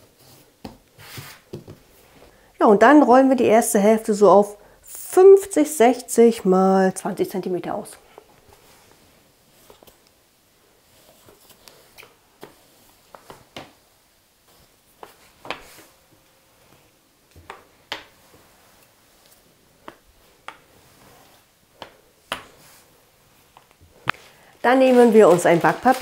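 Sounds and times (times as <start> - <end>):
rolling pin rolling dough: 10.8 - 26.0.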